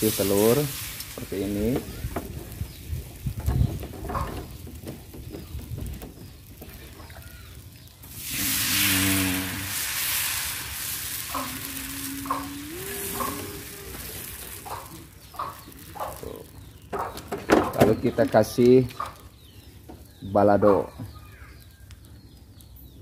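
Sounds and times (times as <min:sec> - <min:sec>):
egg sizzling in a pan: 0:00.0 - 0:03.3, 0:06.5 - 0:16.2.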